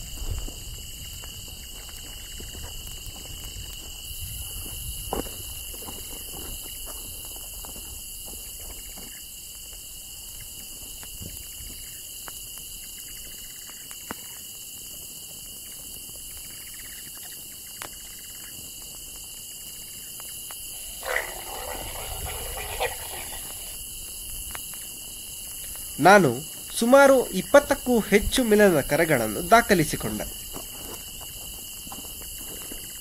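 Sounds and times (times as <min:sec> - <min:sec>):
crickets chirring: 0:00.0 - 0:33.0
leopard growling call: 0:20.7 - 0:23.8.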